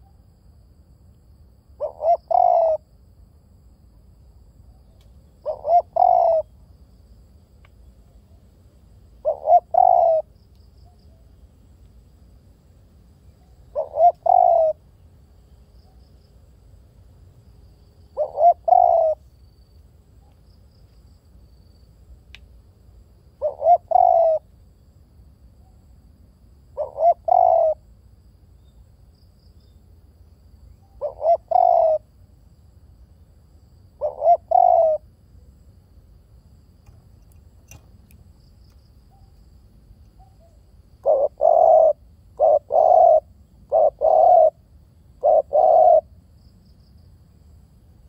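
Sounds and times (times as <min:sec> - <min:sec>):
dove cooing: 0:01.8 - 0:02.8, 0:05.4 - 0:06.5, 0:09.2 - 0:10.3, 0:13.5 - 0:14.8, 0:18.2 - 0:19.3, 0:23.4 - 0:24.5, 0:26.8 - 0:27.8, 0:30.9 - 0:32.1, 0:34.0 - 0:35.1, 0:40.2 - 0:46.2.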